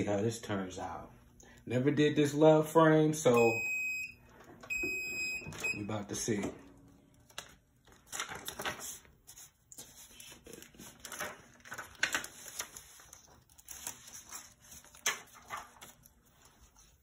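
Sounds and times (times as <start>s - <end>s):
paper rustling and crinkling: 7.2s - 17.0s.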